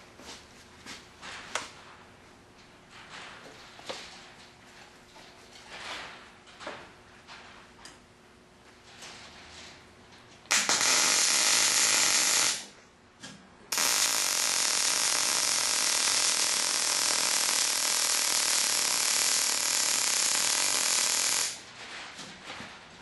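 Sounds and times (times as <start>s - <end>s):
welding arc hissing: 10.5s - 12.7s, 13.7s - 21.6s.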